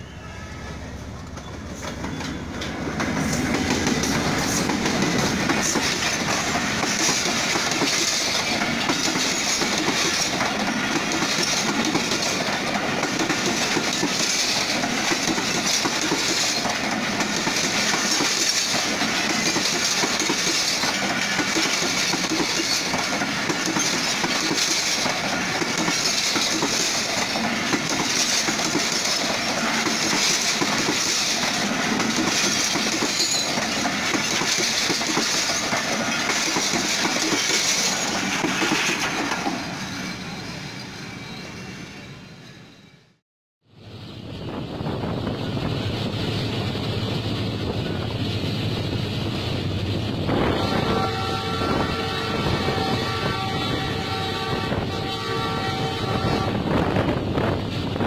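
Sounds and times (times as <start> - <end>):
train wheels rushing on rails: 0.0 - 58.0
wheels clickety-clack on rail joints: 1.0 - 40.4.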